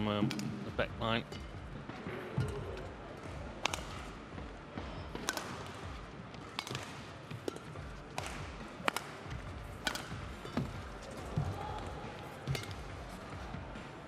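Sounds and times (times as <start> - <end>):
racket hitting shuttlecock: 0.2 - 0.6, 2.3 - 13.8
low murmur of voices: 10.3 - 14.0.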